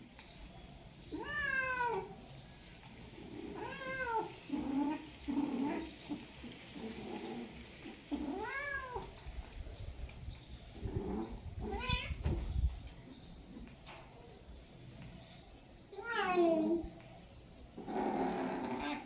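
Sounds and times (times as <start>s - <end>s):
cats yowling: 1.1s - 2.3s, 3.3s - 6.0s, 6.9s - 9.2s, 10.8s - 12.2s, 15.9s - 17.0s, 17.8s - 19.0s.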